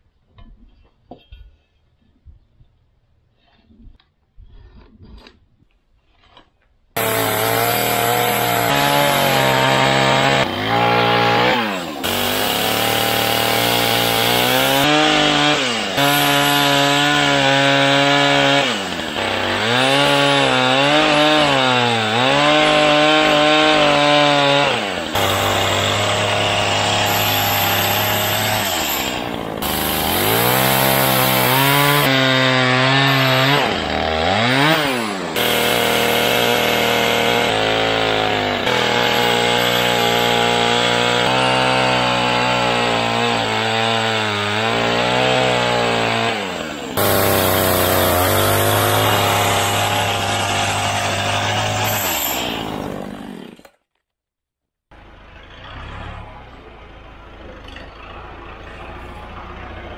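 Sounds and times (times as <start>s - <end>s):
chainsaw cutting wood: 7.0s - 54.0s.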